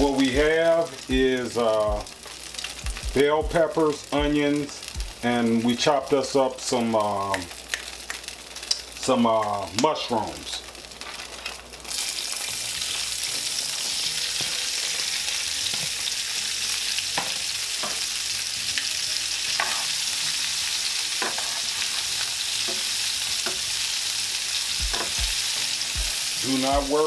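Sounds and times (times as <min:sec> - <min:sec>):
vegetables sizzling in oil: 0:00.0 - 0:27.0.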